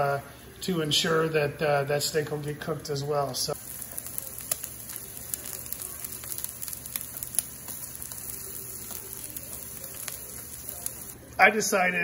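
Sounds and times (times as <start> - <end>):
steak sizzling in butter: 2.4 - 11.2
fat popping and crackling: 3.5 - 11.2.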